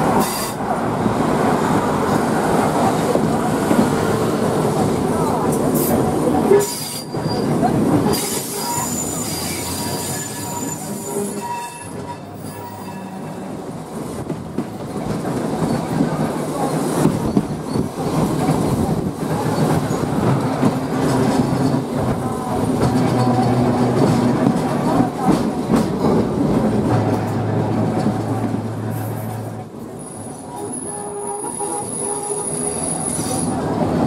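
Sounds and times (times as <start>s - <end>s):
tram rumbling along track: 0.0s - 34.0s
wheels squealing on rails: 5.8s - 13.6s, 15.5s - 26.2s, 28.8s - 33.9s.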